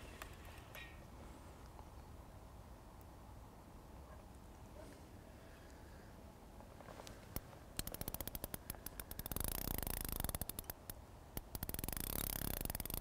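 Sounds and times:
fishing reel drag clicking: 7.8s - 13.0s.

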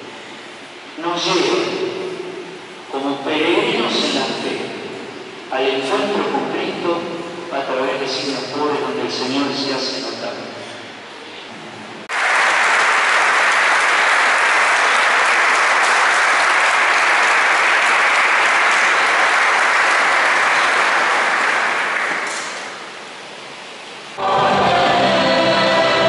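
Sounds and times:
congregation applauding: 12.1s - 23.2s.

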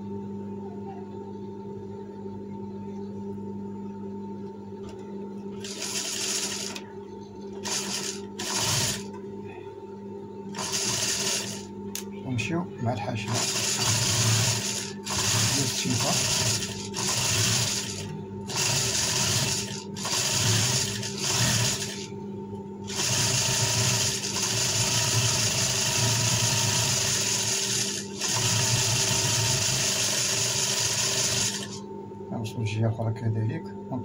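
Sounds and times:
sewing machine stitching: 5.6s - 6.8s, 7.6s - 9.1s, 10.6s - 11.7s, 13.3s - 22.1s, 22.9s - 31.8s.

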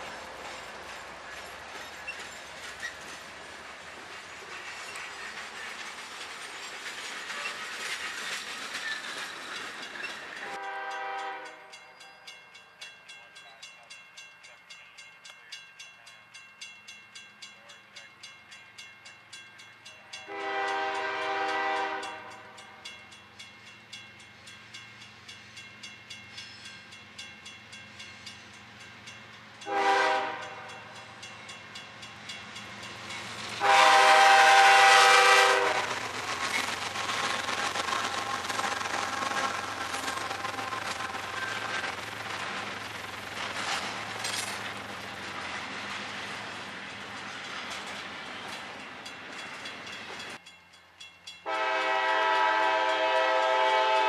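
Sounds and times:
freight train rolling: 0.0s - 54.0s
crossing bell ringing: 9.3s - 34.0s, 47.2s - 54.0s
locomotive horn blasts: 10.4s - 11.8s, 20.1s - 22.5s, 29.6s - 30.8s, 33.6s - 36.0s, 51.4s - 54.0s.

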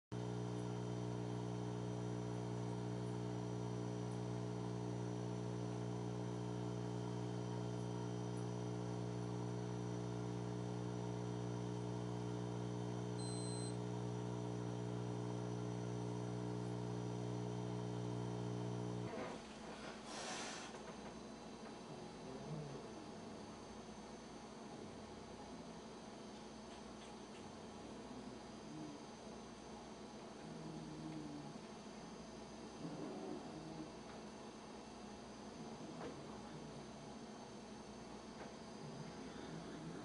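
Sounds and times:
buzzy electrical hum: 0.1s - 40.0s
short high beep: 13.2s - 13.8s.

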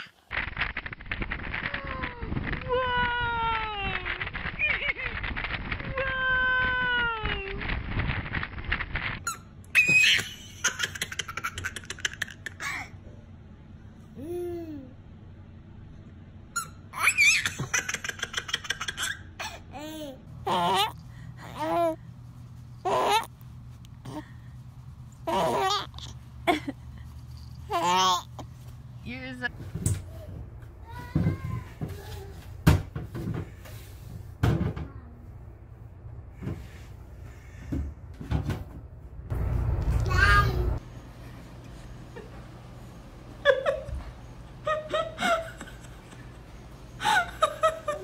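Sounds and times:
infant laughing squeals: 9.8s - 10.8s, 16.6s - 17.8s.

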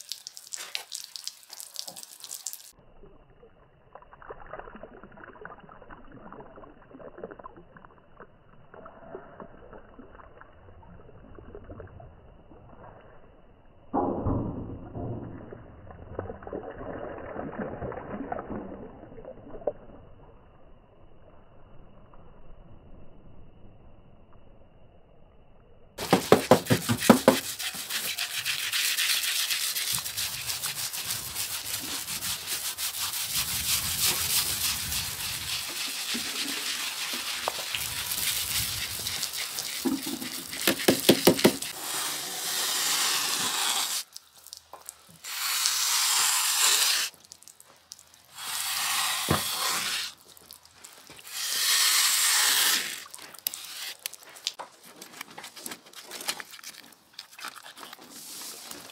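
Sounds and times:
rapid scraping strokes: 26.0s - 44.0s, 48.4s - 50.2s, 51.2s - 54.1s
bursts of hissing noise: 26.0s - 44.1s, 45.0s - 47.2s, 48.2s - 50.2s, 51.2s - 54.0s.

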